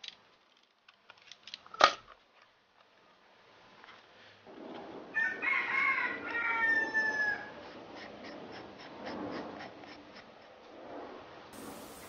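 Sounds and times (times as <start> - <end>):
rooster crowing: 5.1 - 7.6.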